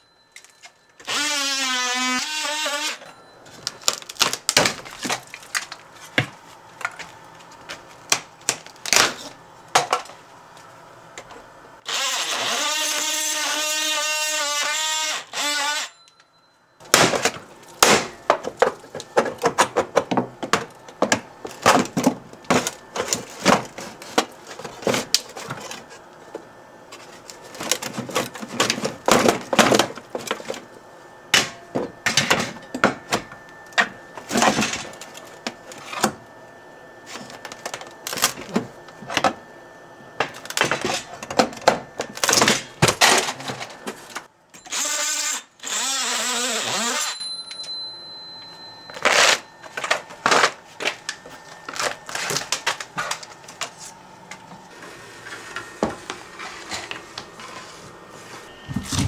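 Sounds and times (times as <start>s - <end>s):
cordless power tool running: 1.0s - 3.0s, 44.6s - 47.2s
wood and metal cracking and snapping: 3.6s - 7.1s, 16.9s - 25.8s.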